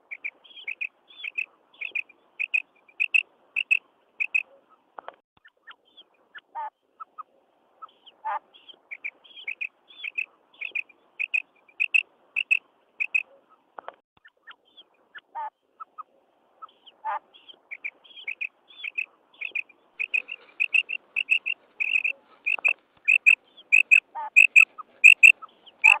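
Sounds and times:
quail calling high notes: 0:10.1 - 0:13.2, 0:18.4 - 0:26.0
rattling bird calls: 0:10.1 - 0:13.2, 0:18.3 - 0:26.0.

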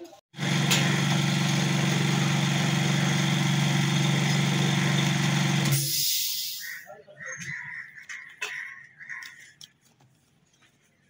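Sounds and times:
machine motor humming and hissing: 0:00.4 - 0:05.8.

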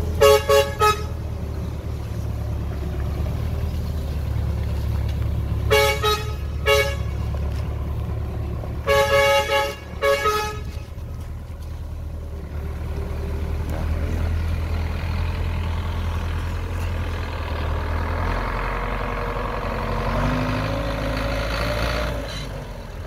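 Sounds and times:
low engine drone: 0:00.0 - 0:23.0
vehicle horn tooting: 0:00.2 - 0:01.2, 0:05.7 - 0:07.3, 0:08.8 - 0:10.8.

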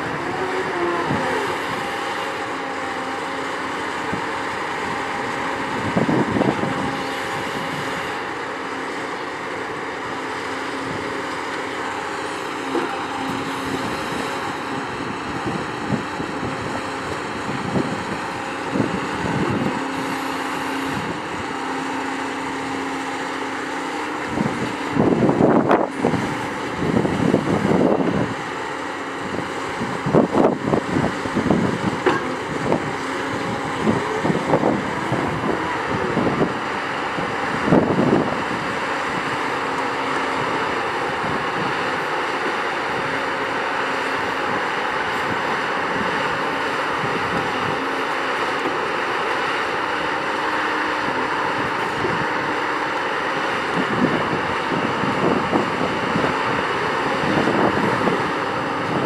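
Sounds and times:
wind on microphone: 0:00.0 - 0:02.2, 0:04.0 - 0:08.2, 0:12.9 - 0:21.6, 0:24.3 - 0:39.7, 0:40.3 - 0:42.1, 0:44.1 - 0:48.0, 0:51.0 - 0:52.7, 0:53.4 - 0:59.0
excavator engine and hydraulics humming: 0:00.0 - 0:59.0.

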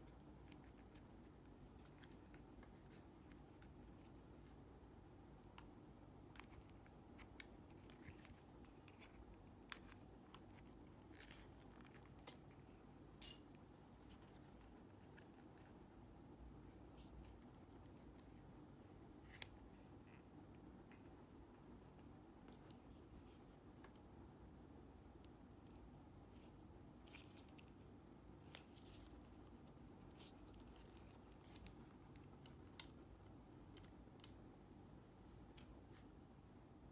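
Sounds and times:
low room hum: 0:00.0 - 0:36.9
plastic earpiece clicks and scrapes: 0:00.1 - 0:04.5, 0:05.3 - 0:15.8, 0:27.1 - 0:34.4.

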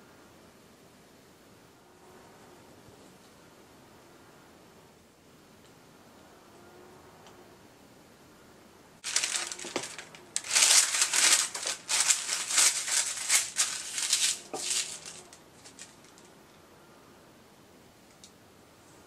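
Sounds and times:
baking parchment crinkling: 0:09.0 - 0:16.3.

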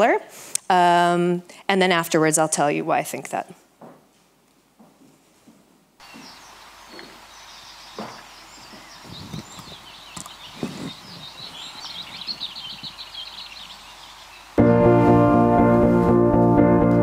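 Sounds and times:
steady hiss: 0:05.1 - 0:16.5
birds chirping: 0:06.0 - 0:14.6.

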